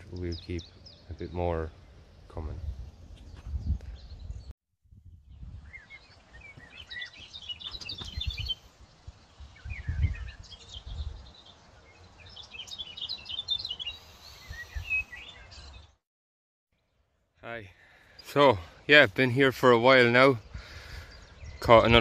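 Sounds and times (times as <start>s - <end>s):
small birds chirping: 0.0s - 4.5s, 5.1s - 16.0s, 16.8s - 22.0s
wind rumble on microphone: 2.3s - 12.5s, 14.4s - 15.9s.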